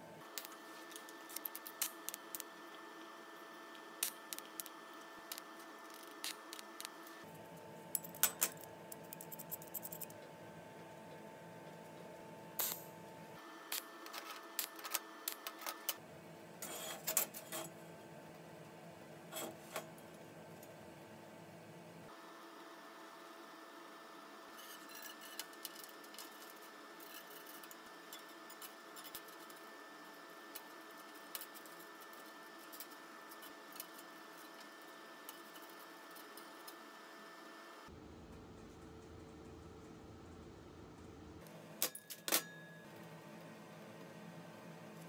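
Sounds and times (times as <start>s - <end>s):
metal parts clinking on steel table: 7.9s - 10.1s.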